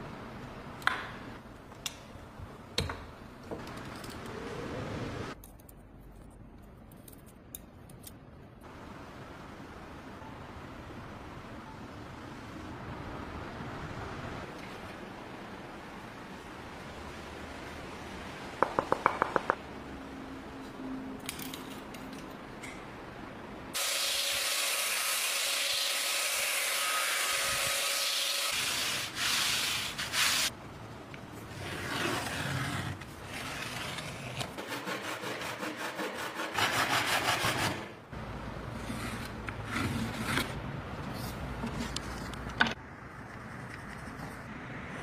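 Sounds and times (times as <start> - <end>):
scraping strokes on wooden board: 31.6 - 37.9.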